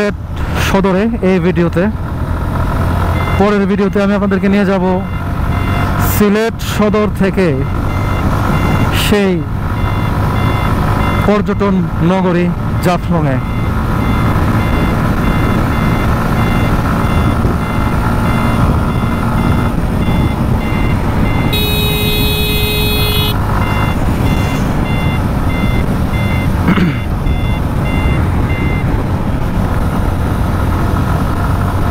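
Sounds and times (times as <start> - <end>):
motorcycle engine and wind rumble: 0.0 - 31.9
high electronic beeping: 13.3 - 28.9
multi-tone horn blast: 21.5 - 23.4.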